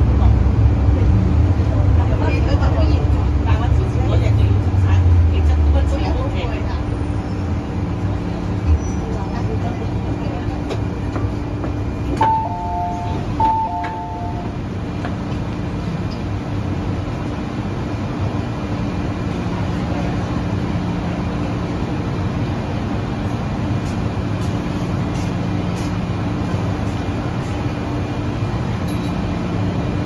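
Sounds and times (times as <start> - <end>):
steady train hum: 0.0 - 30.0
two-note door chime: 12.2 - 14.5.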